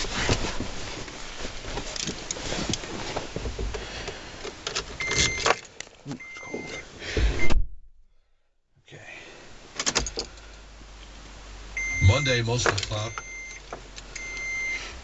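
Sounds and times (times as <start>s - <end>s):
high electronic beeps: 11.8s - 13.6s.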